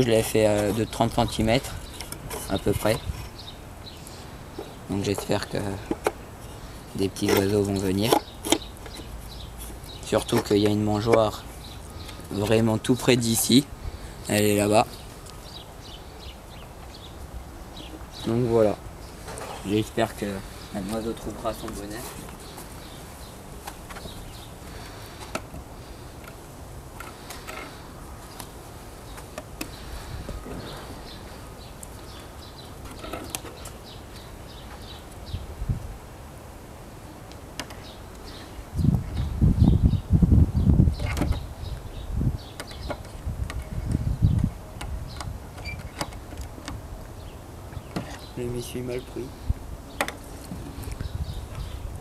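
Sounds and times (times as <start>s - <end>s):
wind rumbling on microphone: 0.0s - 4.0s, 35.2s - 36.2s, 38.6s - 48.5s, 49.2s - 52.0s.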